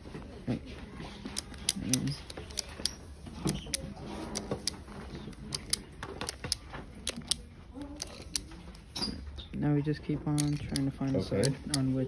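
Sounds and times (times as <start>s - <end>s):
puzzle cube plastic clicks: 1.2s - 9.0s, 10.3s - 11.9s.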